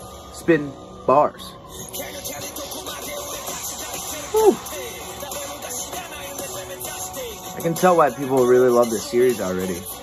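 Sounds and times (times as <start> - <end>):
soundtrack music from tablet: 0.0 - 10.0.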